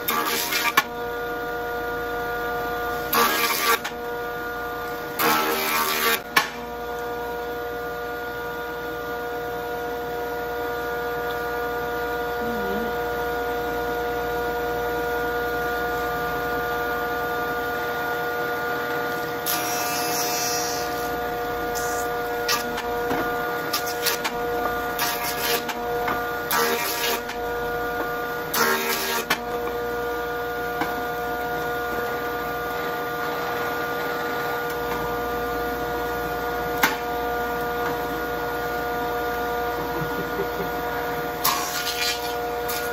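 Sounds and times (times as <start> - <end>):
jointer whining: 18.8 - 42.9.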